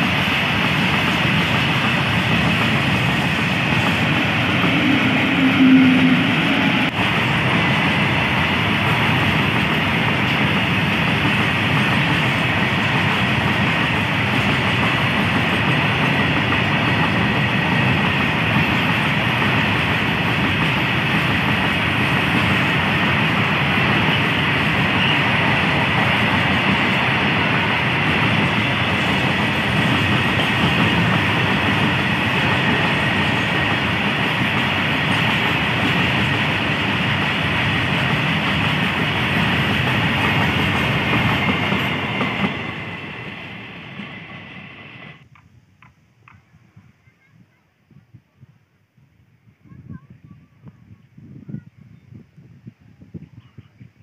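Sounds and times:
freight train rumbling past: 0:00.0 - 0:45.4
electric locomotive hum: 0:00.0 - 0:46.4
faint high wheel squeal: 0:04.7 - 0:06.9.

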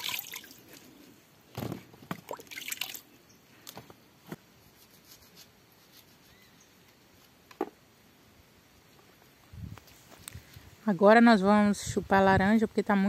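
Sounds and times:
water splashing: 0:00.0 - 0:00.7, 0:02.1 - 0:03.1.

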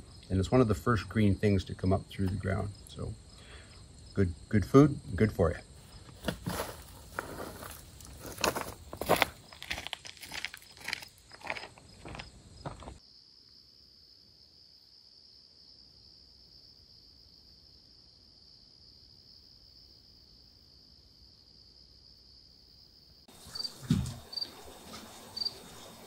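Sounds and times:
crickets trilling: 0:00.0 - 0:26.0
rustle: 0:23.3 - 0:26.0.

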